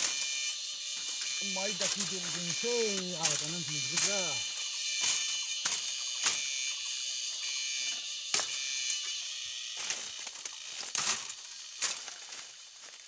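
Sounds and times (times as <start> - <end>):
high-pitched buzz: 0.0 - 12.5
machete chopping bamboo: 5.0 - 6.6, 8.3 - 8.7, 9.8 - 12.2.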